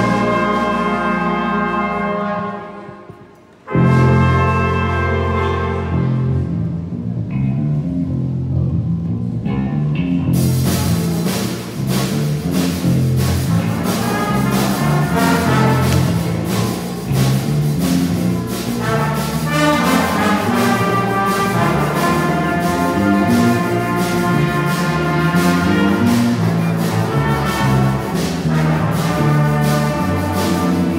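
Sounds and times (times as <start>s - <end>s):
horns holding chords: 0.0s - 7.1s, 10.6s - 30.9s
repeating bass line: 6.0s - 30.9s
drum kit beat: 10.4s - 30.9s.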